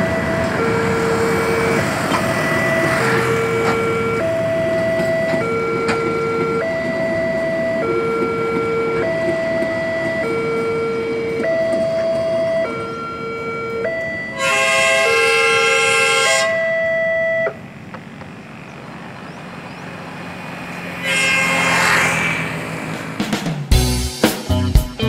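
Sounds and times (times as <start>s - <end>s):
two-tone level-crossing alarm: 0.0s - 17.8s, 19.5s - 23.2s
road traffic: 0.0s - 24.6s
vehicle rushing past: 0.2s - 4.7s, 17.6s - 23.7s
train horn chord: 14.3s - 16.9s, 20.7s - 23.3s.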